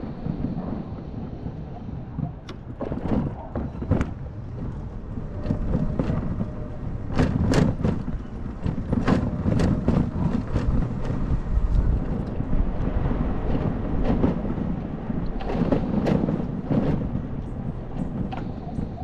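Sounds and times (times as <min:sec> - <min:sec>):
road rumble: 0:00.0 - 0:19.0
wind buffeting microphone: 0:00.0 - 0:19.0
knocks and rattles: 0:02.2 - 0:19.0.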